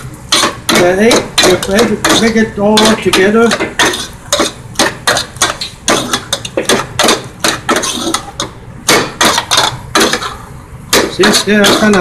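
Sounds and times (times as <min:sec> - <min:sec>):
metal spoon scraping steel bowl: 0:00.3 - 0:08.5, 0:11.0 - 0:12.0.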